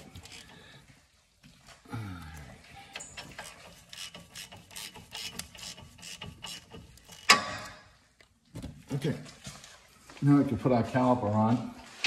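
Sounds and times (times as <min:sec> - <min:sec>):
ratchet wrench clicking: 0:00.0 - 0:00.6, 0:02.9 - 0:07.8.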